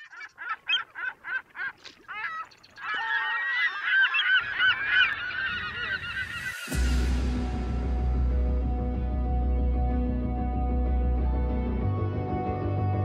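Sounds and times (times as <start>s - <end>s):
flock of birds calling: 0.0s - 6.8s.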